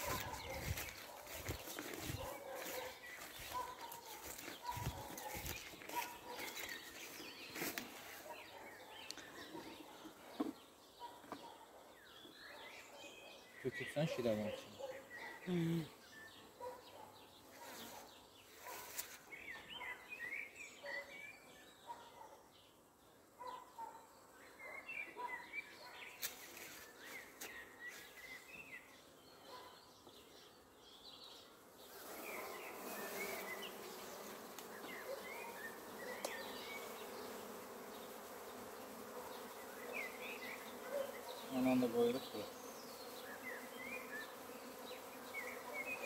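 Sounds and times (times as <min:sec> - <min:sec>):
bees buzzing: 0:31.8 - 0:46.0.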